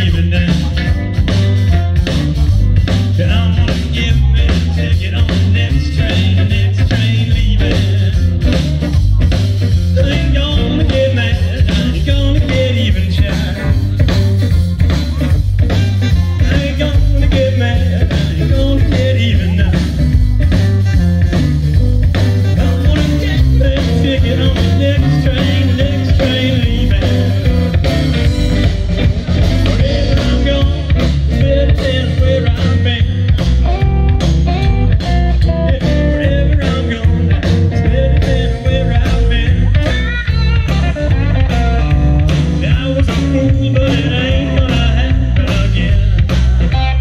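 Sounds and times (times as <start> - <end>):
electric blues band playing: 0.0 - 47.0
saxophone lead: 1.0 - 2.9, 15.2 - 17.2, 20.2 - 31.5.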